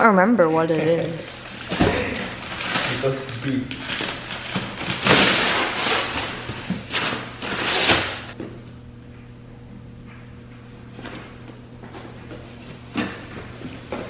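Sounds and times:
wrapping paper tearing: 0:01.4 - 0:08.4.

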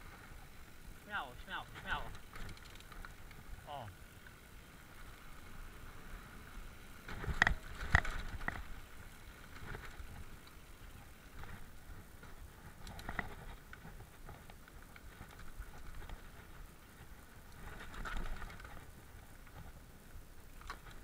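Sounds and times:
bike tyre rumble on dirt: 0:00.0 - 0:21.0
bike frame rattle: 0:02.0 - 0:03.5, 0:07.0 - 0:08.7, 0:12.2 - 0:16.5, 0:17.6 - 0:18.9
sharp knocks of bike over bumps: 0:07.0 - 0:08.8.

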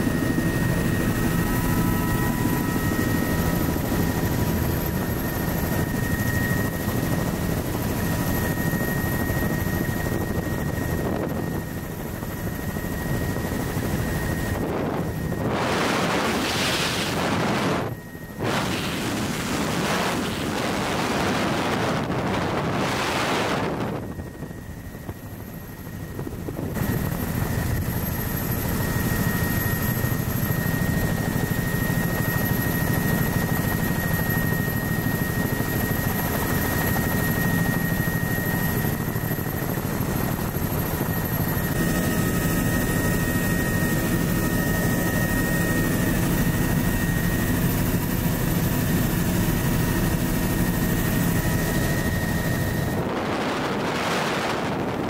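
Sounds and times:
thin high whine: 0:00.0 - 0:48.0
helicopter rotor and engine drone: 0:00.0 - 0:55.0
wind buffeting microphone: 0:00.2 - 0:27.9, 0:50.2 - 0:55.0.

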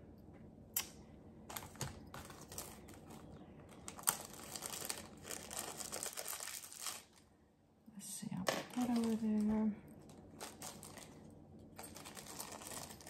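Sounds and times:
plastic packaging crinkling: 0:01.5 - 0:07.3, 0:08.7 - 0:13.0.

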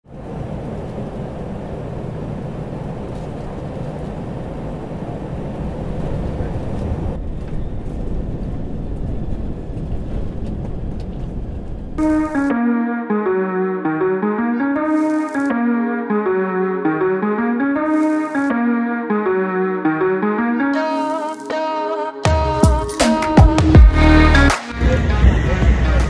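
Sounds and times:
airliner cabin noise: 0:00.0 - 0:12.6
keyboard music: 0:12.0 - 0:26.0.

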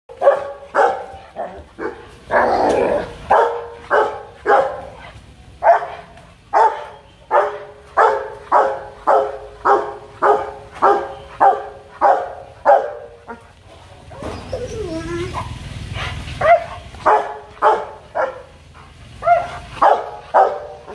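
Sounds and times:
dog barking aggressively: 0:00.1 - 0:13.5, 0:15.4 - 0:20.9.

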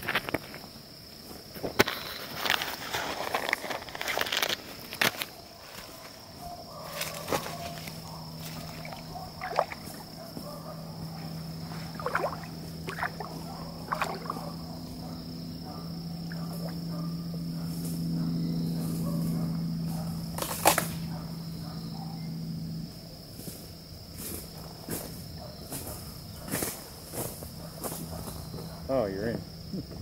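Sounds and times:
high insect buzz: 0:00.0 - 0:30.0
water splashing: 0:08.6 - 0:10.1, 0:11.8 - 0:14.6, 0:16.2 - 0:16.8.

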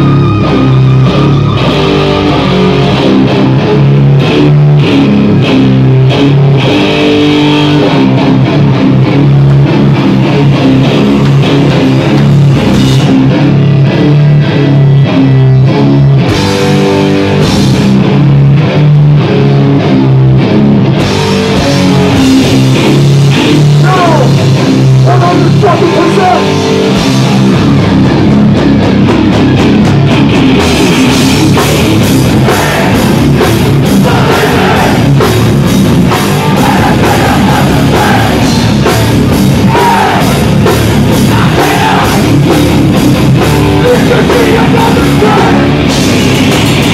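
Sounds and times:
distorted electric guitars chugging: 0:00.0 - 0:46.9
drums and cymbals: 0:10.3 - 0:13.8, 0:21.0 - 0:46.9.

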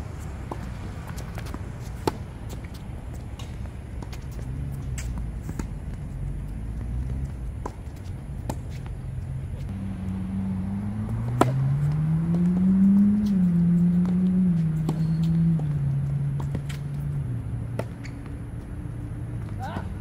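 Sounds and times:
tennis balls struck by rackets: 0:00.0 - 0:20.0
vehicle engine: 0:00.0 - 0:20.0.

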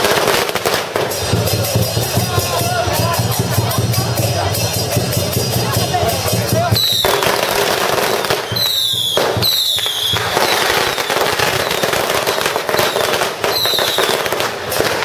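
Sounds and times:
firecrackers crackling: 0:00.0 - 0:15.0
falling whistles: 0:08.4 - 0:14.2.

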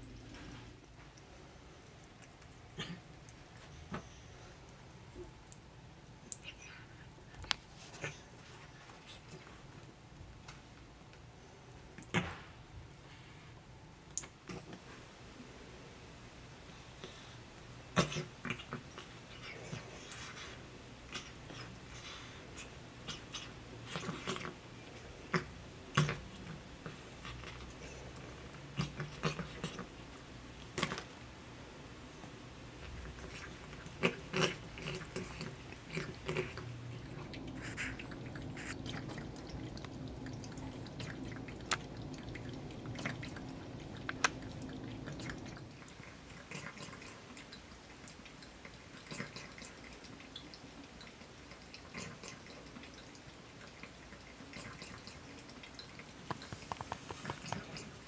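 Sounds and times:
cat lapping water: 0:00.0 - 0:15.0, 0:16.5 - 0:58.0
water dripping into sink: 0:37.0 - 0:46.0.

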